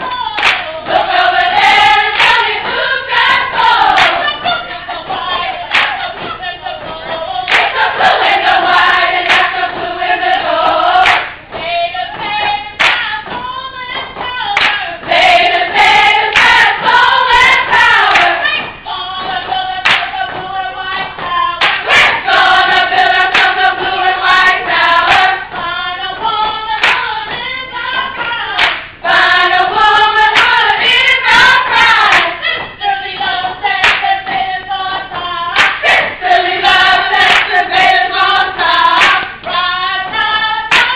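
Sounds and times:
group of voices singing: 0:00.0 - 0:40.9
sharp handclaps: 0:00.1 - 0:00.9, 0:01.8 - 0:04.4, 0:05.7 - 0:06.3, 0:07.0 - 0:08.1, 0:09.2 - 0:09.8, 0:11.0 - 0:11.7, 0:12.3 - 0:13.4, 0:14.0 - 0:15.1, 0:16.2 - 0:18.7, 0:19.3 - 0:20.4, 0:21.0 - 0:23.6, 0:24.3 - 0:25.5, 0:26.8 - 0:27.4, 0:28.0 - 0:29.0, 0:30.3 - 0:31.0, 0:32.0 - 0:32.7, 0:33.8 - 0:34.4, 0:35.1 - 0:36.2, 0:37.2 - 0:37.9, 0:39.0 - 0:40.9.

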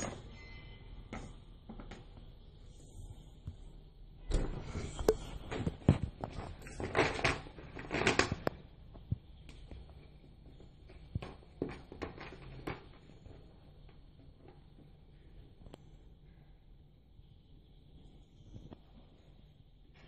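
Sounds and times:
plastic bag rustling and crinkling: 0:04.7 - 0:08.6.

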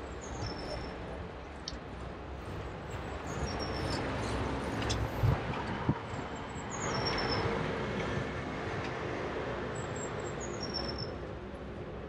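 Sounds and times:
road noise from moving bicycle: 0:00.0 - 0:12.0
wind on microphone: 0:03.4 - 0:06.4.

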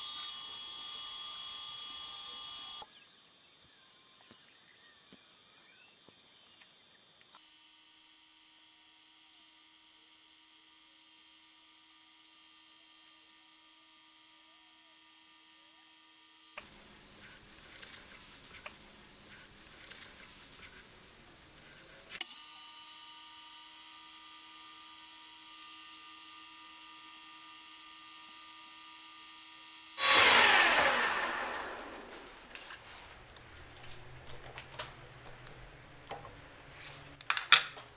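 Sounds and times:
metal lathe whining: 0:30.0 - 0:32.4
lathe spinning down: 0:30.0 - 0:32.8.

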